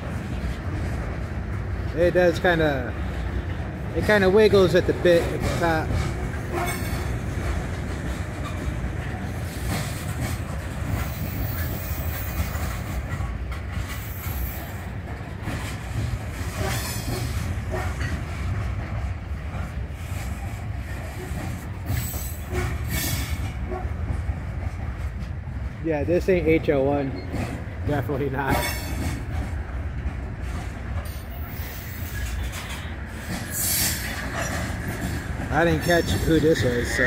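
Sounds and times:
train wheels rumbling on rail: 0.0 - 37.0
high-pitched wheel squeal: 35.8 - 37.0.

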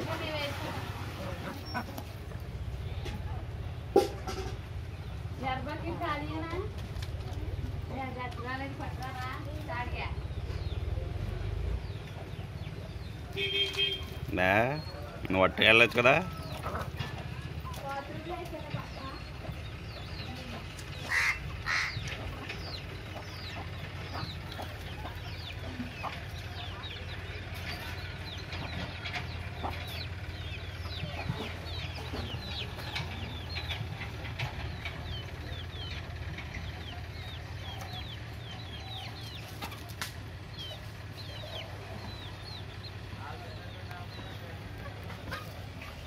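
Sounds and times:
chicks peeping: 0.1 - 46.0
chicken calling: 1.2 - 2.4, 21.0 - 26.5.

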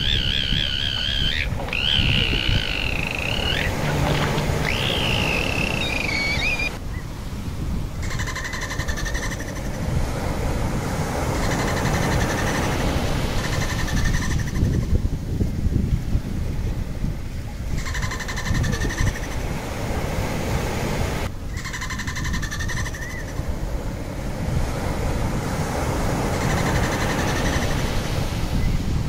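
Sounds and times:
dolphin pulsed calls: 0.0 - 6.8
dolphin whistles: 0.0 - 6.8.

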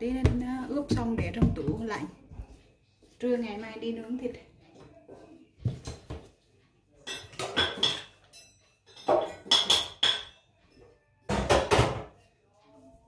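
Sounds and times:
kitchen utensils clattering: 7.0 - 10.5.

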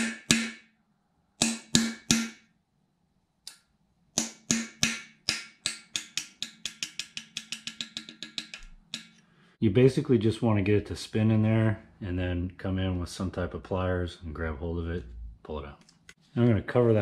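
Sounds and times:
hammer striking steel punch: 0.0 - 0.7, 1.4 - 2.5, 4.2 - 7.8.

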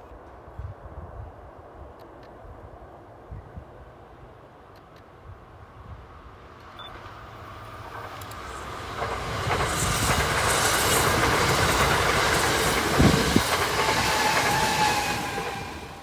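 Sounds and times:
train rumbling past: 5.4 - 16.0
wheels clacking over rail joints: 7.0 - 16.0.

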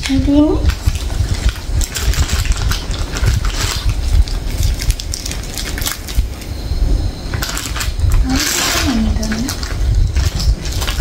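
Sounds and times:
plastic wrappers crinkling: 0.0 - 6.6, 7.3 - 11.0.

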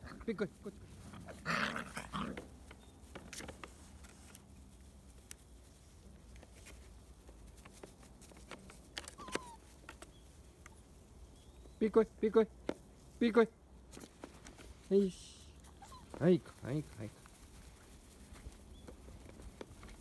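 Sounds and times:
faint small clicks and rustles: 2.0 - 11.8, 15.6 - 20.0.

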